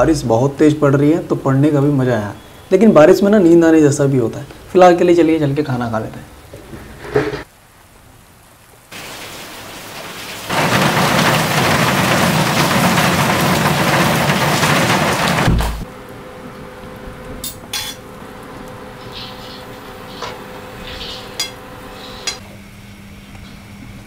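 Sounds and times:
heavy rain pouring: 7.4 - 17.4, 18.0 - 21.9.

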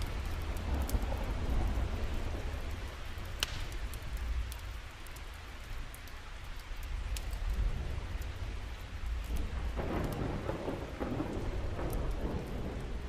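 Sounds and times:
thunder rumbling: 0.0 - 4.1, 7.5 - 13.0
rain falling: 0.0 - 13.0
drop ticks: 3.4 - 3.8.

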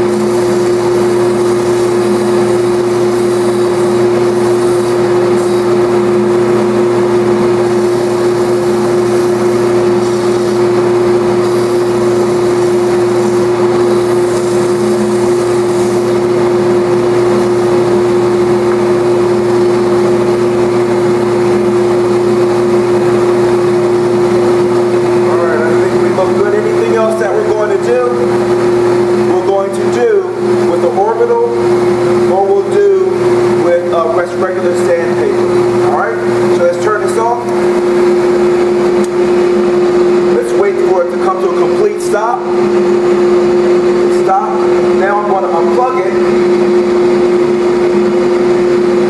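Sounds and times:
belt sander humming: 0.0 - 49.0
wood pressed against sanding belt: 7.0 - 16.4.

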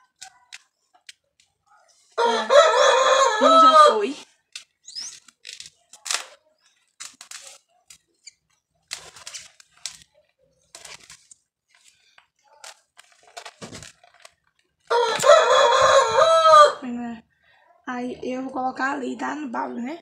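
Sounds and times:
rooster crowing: 2.2 - 4.2, 14.9 - 16.9.

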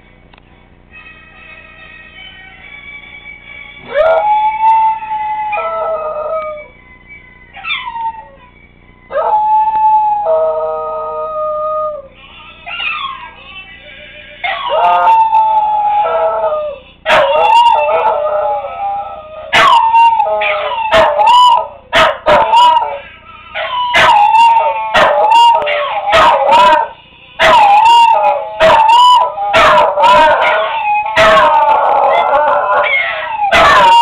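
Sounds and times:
music: 0.0 - 10.1, 12.1 - 19.5, 24.5 - 27.4
dog howling: 3.8 - 6.7, 7.6 - 8.4, 9.1 - 13.4, 14.4 - 34.0.

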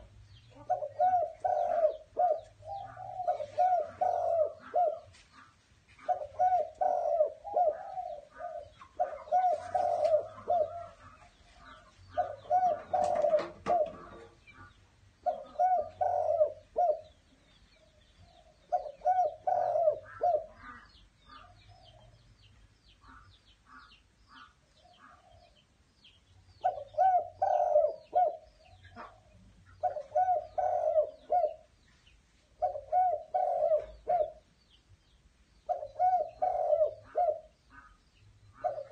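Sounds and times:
dove cooing: 0.0 - 14.4, 15.2 - 17.2, 18.3 - 22.2, 26.6 - 31.7, 32.6 - 34.5, 35.7 - 38.0, 38.6 - 38.9.

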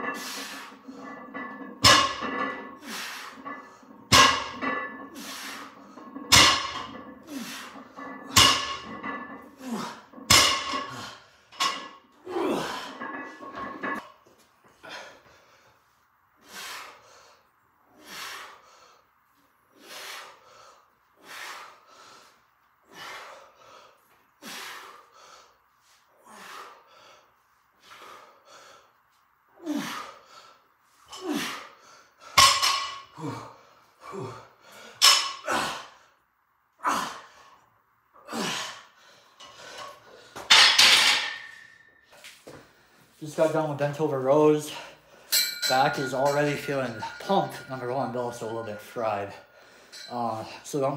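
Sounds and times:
hard breathing: 0.0 - 11.6, 14.6 - 32.4, 38.3 - 40.6, 49.2 - 50.7
short grunts: 9.5 - 10.1, 12.2 - 13.0, 33.2 - 34.5.

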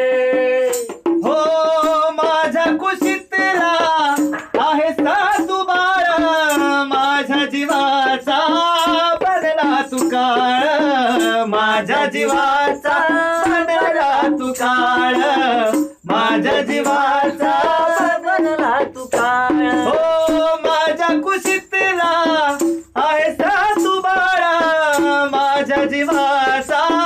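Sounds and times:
hand drum tapping: 3.8 - 5.7.

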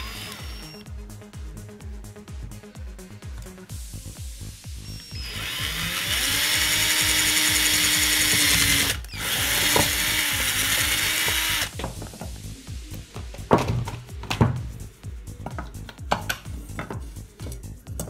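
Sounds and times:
power drill whining: 0.0 - 0.8, 4.8 - 11.8.

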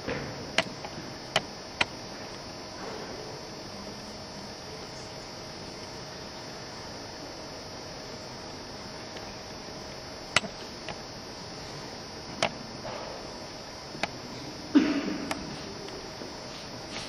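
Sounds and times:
faint high steady tones: 0.0 - 17.0
sharp clicks: 0.6 - 2.4, 10.3 - 11.0.

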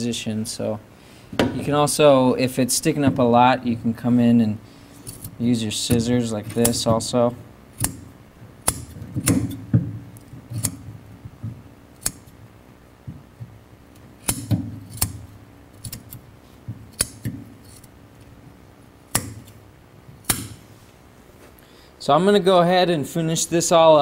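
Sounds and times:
scissors snipping: 10.5 - 10.8, 16.9 - 17.9.

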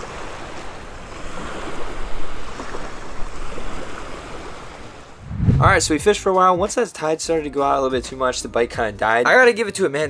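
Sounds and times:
surf washing up a beach: 0.0 - 5.2.

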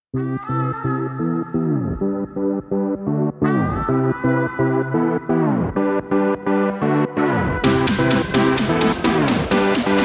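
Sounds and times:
bright beat: 7.6 - 10.0
repeating pitched notes: 7.6 - 10.0.

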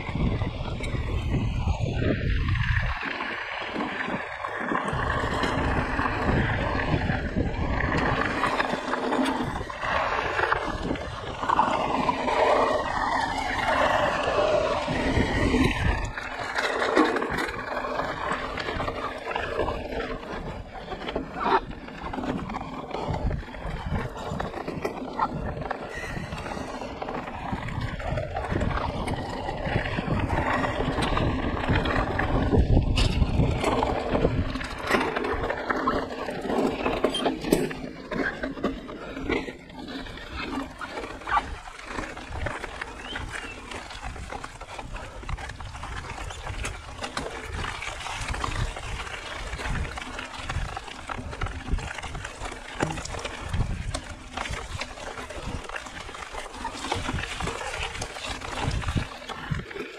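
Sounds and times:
wind rushing: 0.0 - 3.1
bike knocking and rattling: 0.0 - 59.9
bike tyre noise on dirt: 0.0 - 59.9.

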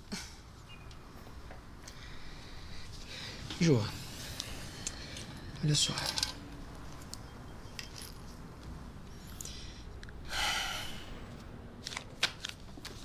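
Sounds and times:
person breathing out sharply: 9.4 - 11.2.

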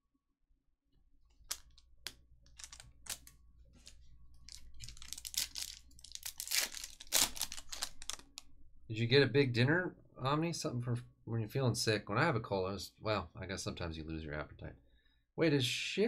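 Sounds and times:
wrapper tearing: 2.5 - 8.5
foil wrapper crackling: 4.5 - 8.4.

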